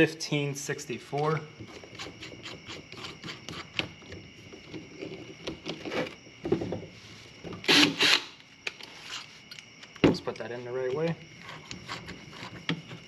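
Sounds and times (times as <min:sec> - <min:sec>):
drill bits clicking and knocking: 0:07.6 - 0:08.8.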